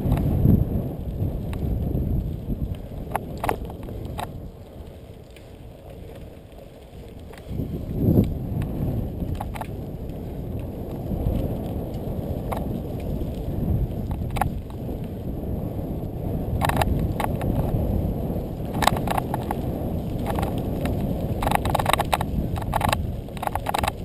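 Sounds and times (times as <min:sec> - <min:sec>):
bike rattling over bumps: 0:00.0 - 0:24.0
wind and tyre rumble: 0:00.0 - 0:24.0.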